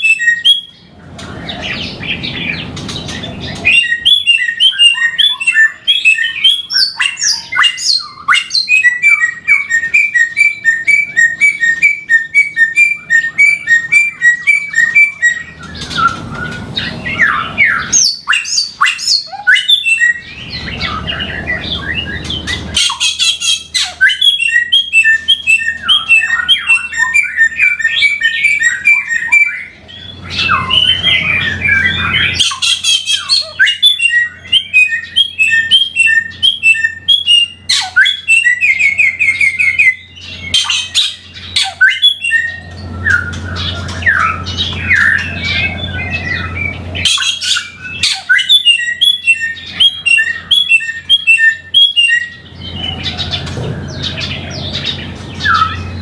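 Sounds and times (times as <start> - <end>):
songbird singing: 0.0 - 56.0.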